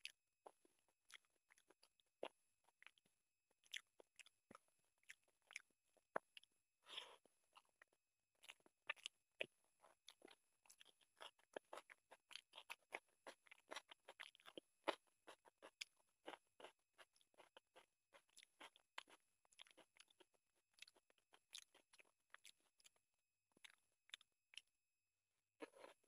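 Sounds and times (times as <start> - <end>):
wet chewing and lip smacks: 0.0 - 24.8, 25.6 - 26.0
fingers squishing rice: 3.8 - 23.0.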